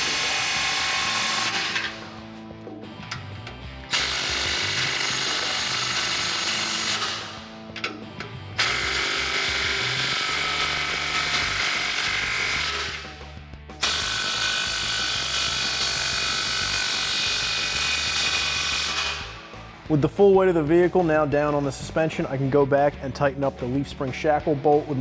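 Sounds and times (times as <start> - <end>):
impact wrench hammering bolts: 0.0 - 2.1, 3.0 - 13.1.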